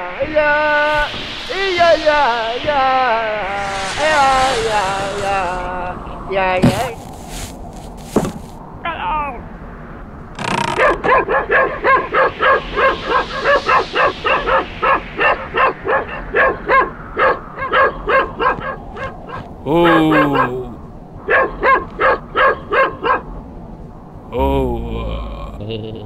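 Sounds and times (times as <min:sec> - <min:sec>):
cartoon dogs yapping: 0:10.8 - 0:23.3.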